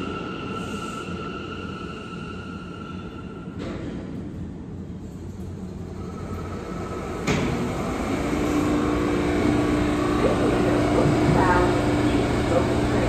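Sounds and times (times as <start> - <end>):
subway train rumble: 0.0 - 13.0
train hum: 0.0 - 13.0
train clunk: 7.2 - 7.9.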